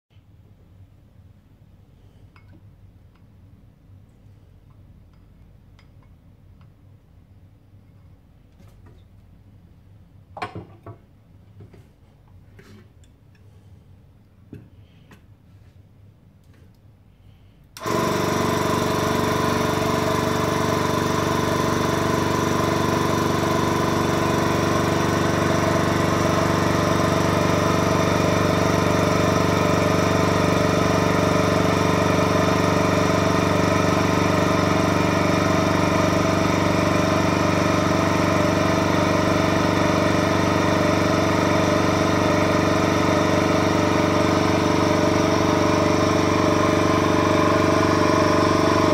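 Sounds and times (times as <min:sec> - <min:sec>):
vacuum pump humming: 0:17.8 - 0:48.9.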